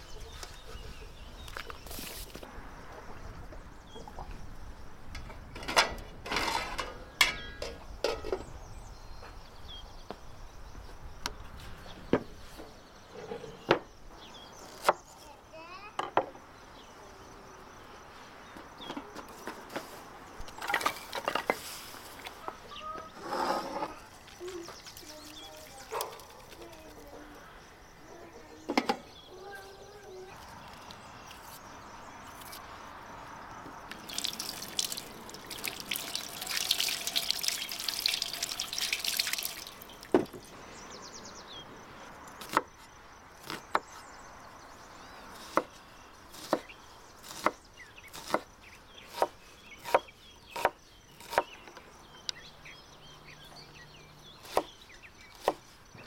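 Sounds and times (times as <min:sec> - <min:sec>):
water running: 0:24.1 - 0:26.7, 0:33.9 - 0:40.5.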